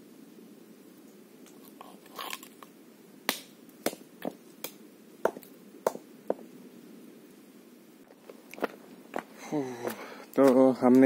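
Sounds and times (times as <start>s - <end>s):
stone knocking shells on rock: 3.3s - 6.4s.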